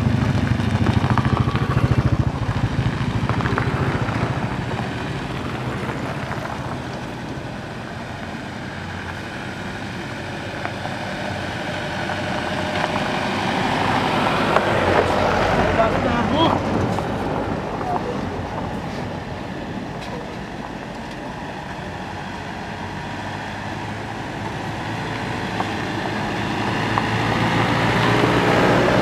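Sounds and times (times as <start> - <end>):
motorcycle engine passing: 0.0 - 19.2, 23.0 - 29.0
jeep engine approaching: 0.0 - 29.0.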